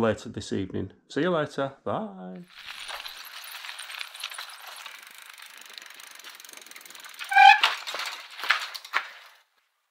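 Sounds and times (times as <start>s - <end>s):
bicycle freewheel ratcheting: 2.5s - 9.4s.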